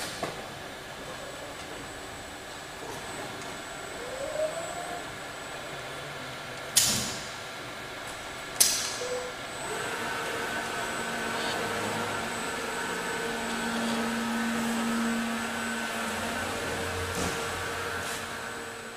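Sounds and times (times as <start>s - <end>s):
machine hum: 1.0s - 18.9s.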